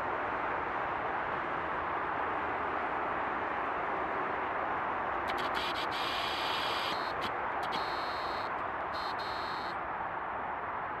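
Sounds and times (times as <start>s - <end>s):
thin high-pitched hiss: 5.3s - 9.7s
steady background hiss: 5.3s - 9.8s.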